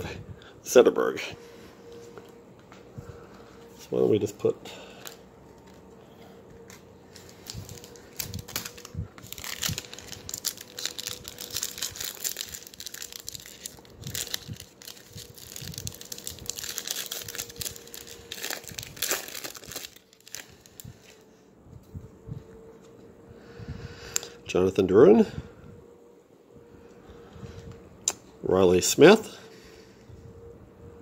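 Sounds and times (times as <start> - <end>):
foil wrapper crinkling and tearing: 6.7 - 21.2.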